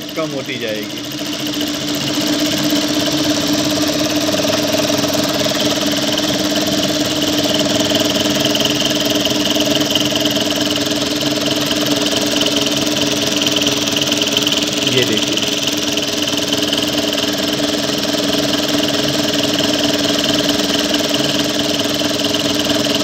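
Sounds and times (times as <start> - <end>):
sewing machine running: 0.0 - 23.0.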